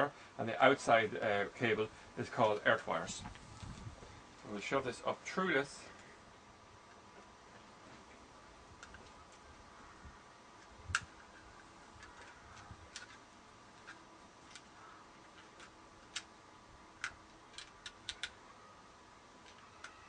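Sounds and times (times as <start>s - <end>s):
fingers clicking and tapping plastic: 17.0s - 18.4s.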